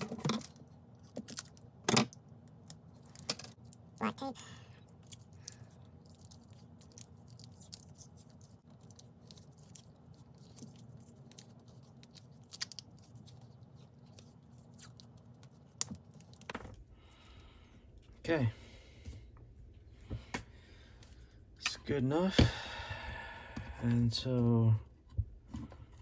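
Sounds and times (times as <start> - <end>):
tape crackling and scratching: 0.0 - 16.8.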